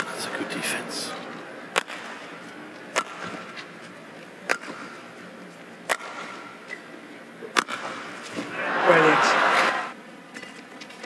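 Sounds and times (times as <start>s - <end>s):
rackets striking shuttlecock: 2.9s - 3.4s.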